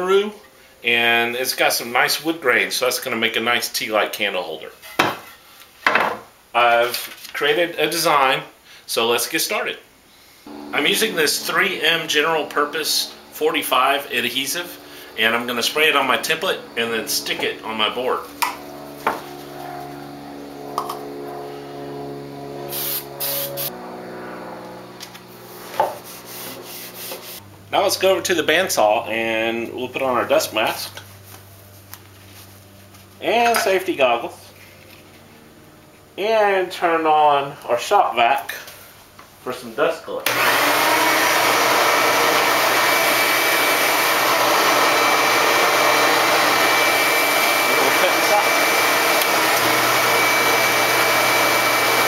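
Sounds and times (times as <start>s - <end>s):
steady hum: 10.0s - 37.6s
thin high whine: 10.2s - 37.7s
shop vacuum running: 10.4s - 36.6s, 40.2s - 52.0s
aerosol can spraying: 22.7s - 23.7s, 25.7s - 27.4s.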